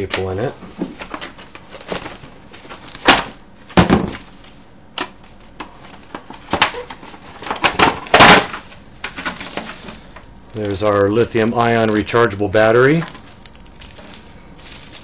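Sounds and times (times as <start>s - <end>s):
cardboard crackling and scraping: 5.3s - 15.0s.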